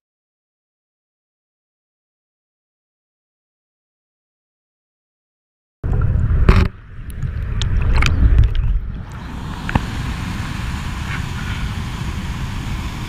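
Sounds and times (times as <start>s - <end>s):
muffled underwater water rumble: 5.8s - 13.0s
sharp clicks and knocks underwater: 5.9s - 8.7s, 9.6s - 9.9s
stream rushing: 9.0s - 13.0s.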